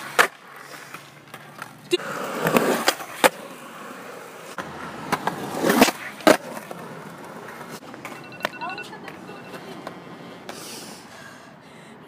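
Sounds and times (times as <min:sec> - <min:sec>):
skateboard wheels rolling on concrete: 0:00.0 - 0:11.6
skateboard clacks: 0:04.5 - 0:10.6.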